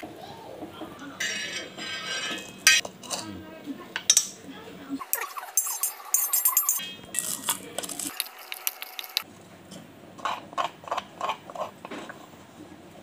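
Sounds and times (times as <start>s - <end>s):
spoon scraping mortar: 5.6s - 9.3s
pestle crushing seeds in mortar: 7.2s - 9.3s, 10.2s - 12.2s.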